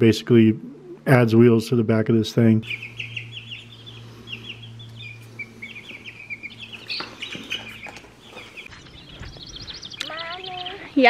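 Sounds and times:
steady low hum: 0.0 - 11.0
chicks peeping: 2.6 - 11.0.

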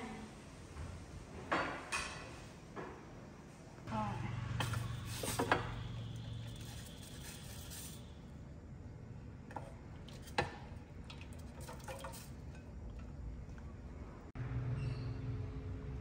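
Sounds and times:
pot and utensils clinking: 9.5 - 13.1.

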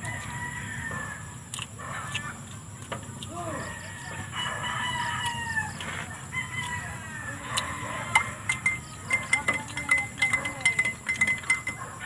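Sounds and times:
rooster crowing: 0.0 - 1.3, 3.6 - 8.6
eating clicks and smacks: 1.5 - 4.0, 7.5 - 11.6.

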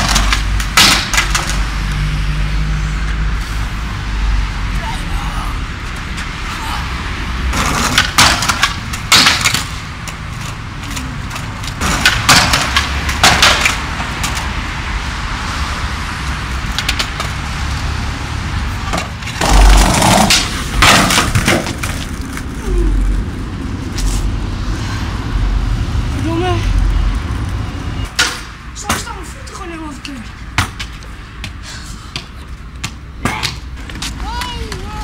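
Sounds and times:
skateboard clattering on concrete: 0.0 - 1.6, 7.6 - 9.8, 10.4 - 14.4, 18.9 - 22.5
skateboard wheels rolling: 0.0 - 1.9, 7.5 - 14.6, 15.8 - 24.3.

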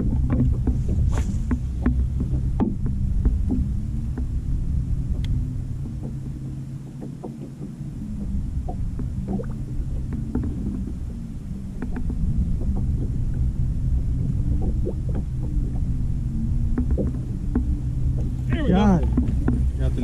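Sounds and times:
light taps against hull: 0.0 - 4.3, 11.8 - 13.4, 16.7 - 20.0
boat engine rumble: 0.0 - 20.0
faint steady hum: 0.0 - 20.0.

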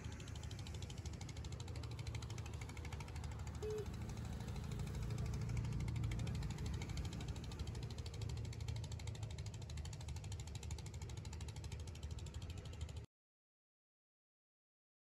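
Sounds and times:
brief high tone: 3.6 - 4.0.

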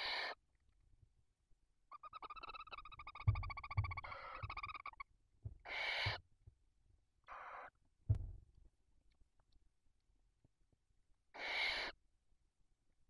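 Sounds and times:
owl rasping hisses: 0.0 - 0.4, 5.6 - 6.2, 7.3 - 7.8, 11.3 - 12.0
owl trilling call: 0.0 - 0.4, 1.9 - 6.2, 7.3 - 7.8, 11.4 - 12.0.

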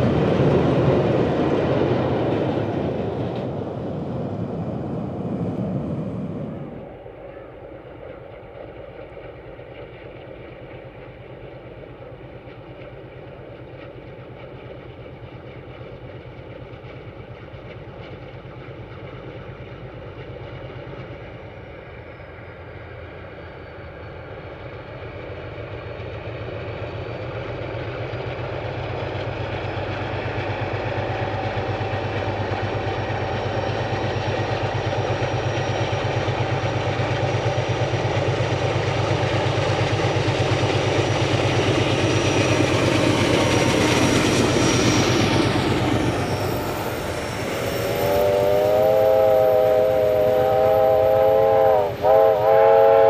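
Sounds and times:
diesel locomotive engine drone: 0.0 - 53.0.

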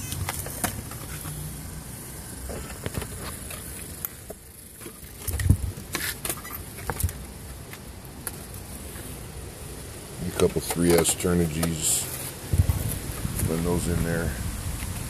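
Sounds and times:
handling clicks and knocks: 10.3 - 11.9.

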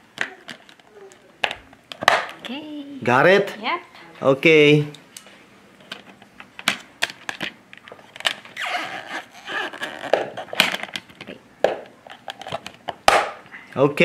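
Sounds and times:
plastic scraping rubs: 6.7 - 11.4.

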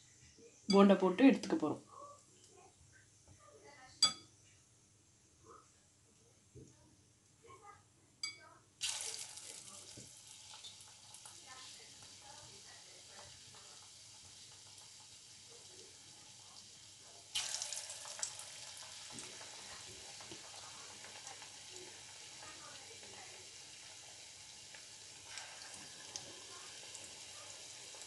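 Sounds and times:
batter frying in hot oil: 8.8 - 28.0.

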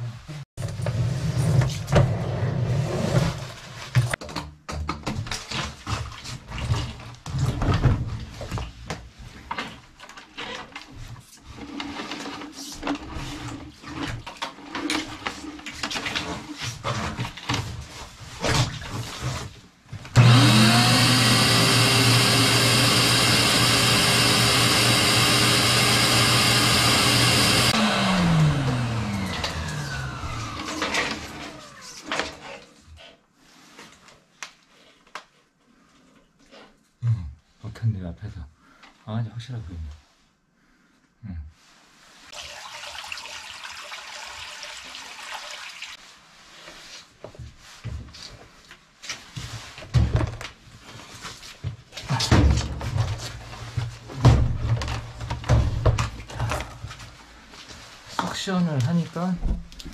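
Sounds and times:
shop vacuum running: 20.1 - 32.0.

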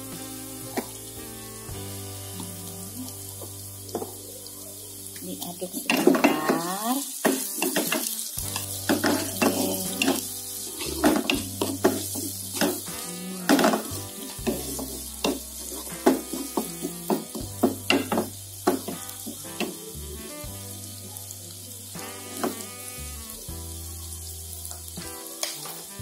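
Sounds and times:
oil sizzling in a wok: 0.0 - 26.0
spatula scraping and knocking pan: 5.9 - 19.8.

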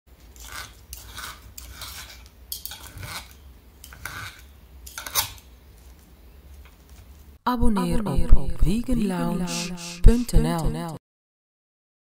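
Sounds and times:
knife scraping a plate: 0.3 - 5.5.

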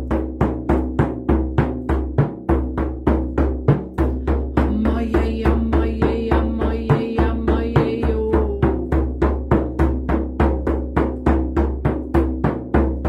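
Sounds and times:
frame drum beating: 0.0 - 13.0
woman's wordless singing: 4.2 - 9.4.

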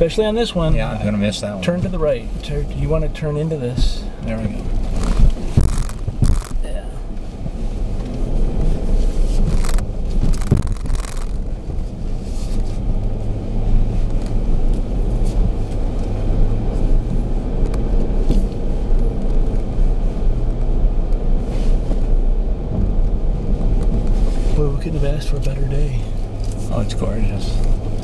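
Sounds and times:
engine and tyres rumbling: 0.0 - 28.0
knocks and crunches: 3.8 - 6.8, 8.6 - 11.8.

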